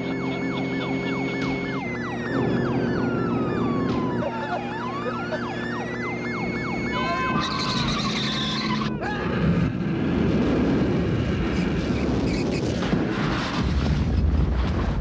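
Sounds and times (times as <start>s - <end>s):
siren wail: 0.0s - 11.9s
rumbling explosion blast: 9.3s - 15.0s
car crash: 11.6s - 15.0s.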